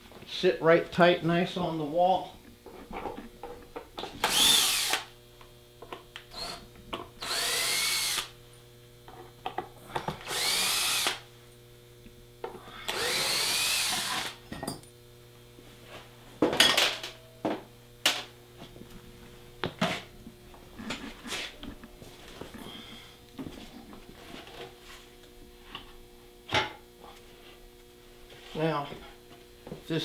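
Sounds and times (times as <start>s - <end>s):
cordless drill driving screws: 4.2s - 5.1s, 6.3s - 6.6s, 7.2s - 8.3s, 10.2s - 11.2s, 12.9s - 14.4s.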